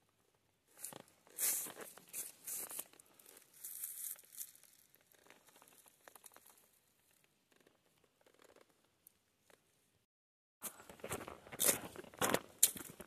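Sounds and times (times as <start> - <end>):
rustling undergrowth: 0.7 - 6.1
footsteps crunching dry leaves: 0.8 - 4.9.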